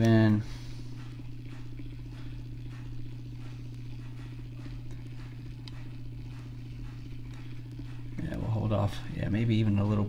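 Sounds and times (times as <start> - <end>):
small electric motor humming: 0.0 - 10.0
faint regular ticks: 0.9 - 8.5.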